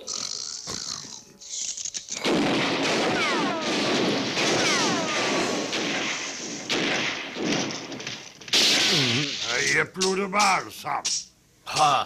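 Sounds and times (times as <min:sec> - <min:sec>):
cartoon revolver shots: 0:02.2 - 0:11.9
ricochet whines: 0:02.3 - 0:09.8.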